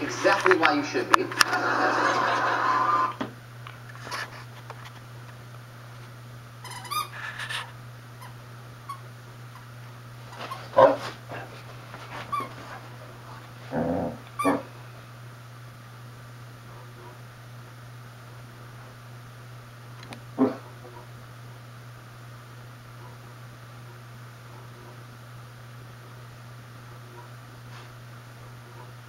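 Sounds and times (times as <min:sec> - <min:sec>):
steady low hum: 0:00.0 - 0:29.0
dogs yelping: 0:14.2 - 0:14.7
dogs whining and yipping: 0:14.4 - 0:14.7.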